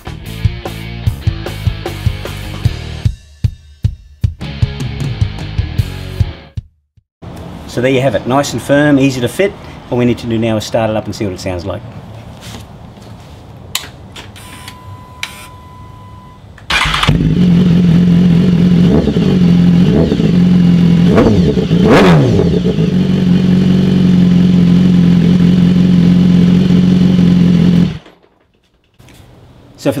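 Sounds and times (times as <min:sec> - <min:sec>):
brief steady tone: 0:14.4 - 0:16.5
motorcycle engine idling and revving: 0:16.7 - 0:28.4.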